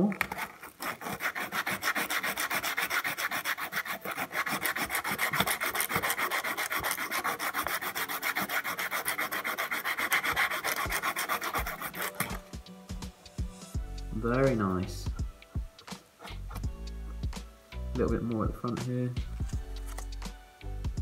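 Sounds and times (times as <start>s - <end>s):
abrasive pad scratching pipe: 0.3s - 12.4s.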